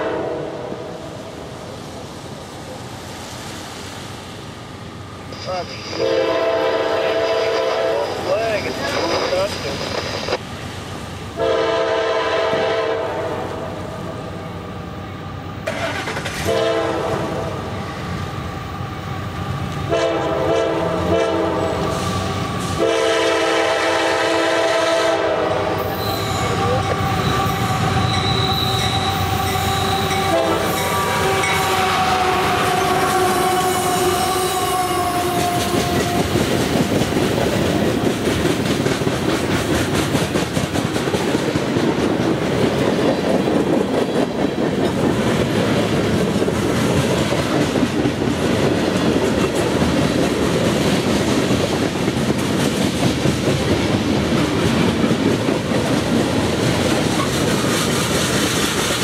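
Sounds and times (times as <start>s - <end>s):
locomotive horn blasts: 0.0s - 0.9s, 5.7s - 8.3s, 11.4s - 13.7s, 16.4s - 17.6s, 19.9s - 22.0s, 22.8s - 36.4s
freight train rolling past: 0.0s - 59.0s
wheels clicking over rail joints: 15.6s - 16.5s, 35.3s - 59.0s
high wheel squeal: 25.8s - 36.2s.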